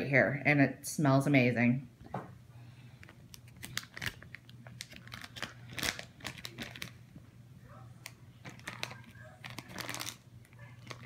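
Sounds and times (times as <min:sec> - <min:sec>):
faint steady hum: 0:00.0 - 0:11.0
plastic bags crinkling: 0:03.0 - 0:07.1, 0:08.0 - 0:11.0.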